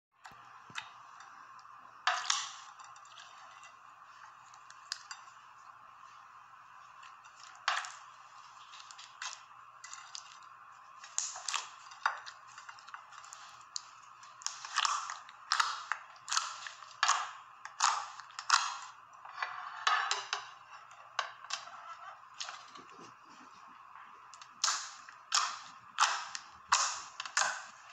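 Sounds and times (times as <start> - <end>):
slime crackling and popping: 11.0 - 19.1, 24.3 - 27.9.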